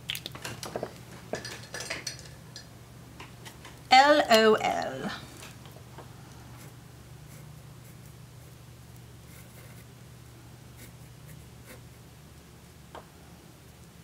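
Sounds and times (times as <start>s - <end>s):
steady low hum: 0.8s - 14.0s.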